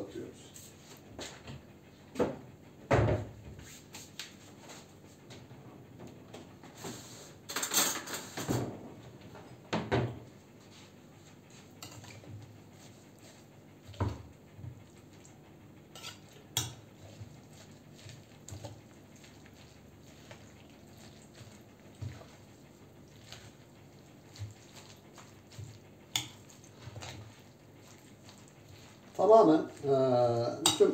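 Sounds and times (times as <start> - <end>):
fork scraping glass bowl: 11.8 - 12.2, 15.9 - 22.4, 23.1 - 29.1, 30.6 - 30.9.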